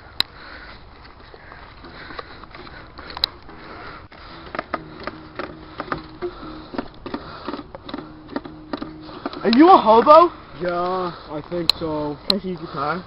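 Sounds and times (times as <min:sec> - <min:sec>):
handheld camera rustling: 0:00.1 - 0:13.0
acoustic guitar strumming: 0:03.5 - 0:10.5.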